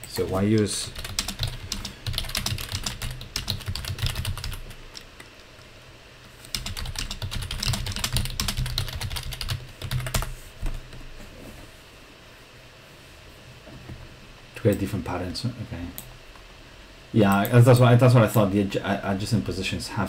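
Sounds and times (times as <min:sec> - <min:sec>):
typing on computer keyboard: 0:00.1 - 0:05.1, 0:06.5 - 0:10.3.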